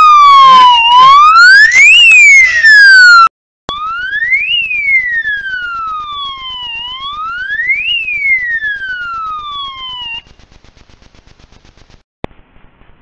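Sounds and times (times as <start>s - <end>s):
electronic siren wailing: 0.0s - 10.9s.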